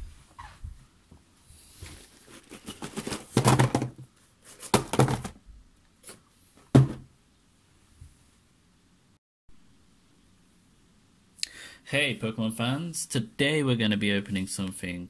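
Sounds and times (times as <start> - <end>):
boxes knocking on a tabletop: 2.8 - 5.4, 6.7 - 7.1.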